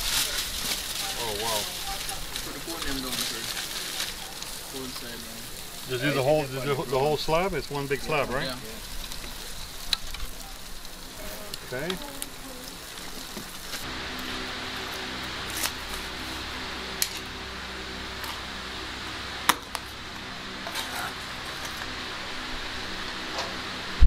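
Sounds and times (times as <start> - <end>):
steady hum: 0.0 - 24.0.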